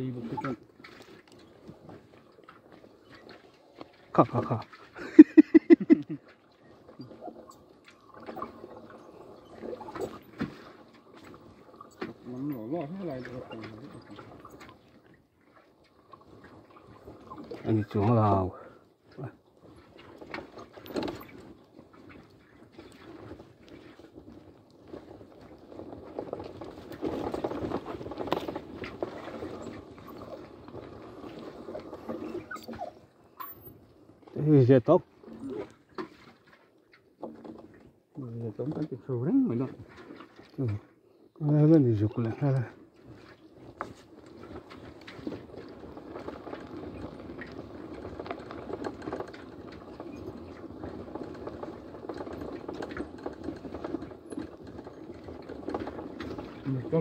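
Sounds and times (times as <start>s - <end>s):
knocks and rattles from bumps: 19.2s - 35.1s, 35.8s - 40.9s, 41.5s - 57.0s.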